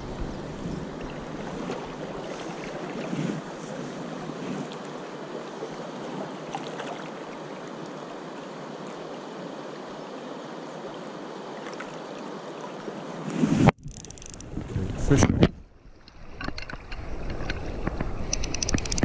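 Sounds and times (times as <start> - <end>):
river water rushing: 0.0 - 13.3.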